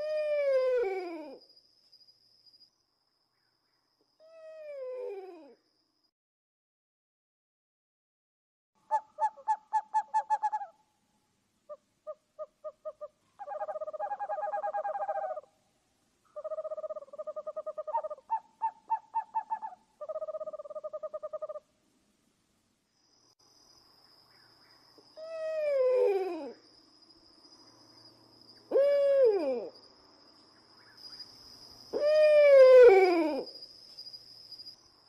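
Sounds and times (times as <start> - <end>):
owl trilling hoots: 0.0 - 1.4, 4.2 - 5.6, 8.9 - 10.8, 11.7 - 15.5, 16.3 - 21.6, 25.1 - 26.6, 28.7 - 29.7, 31.9 - 33.6.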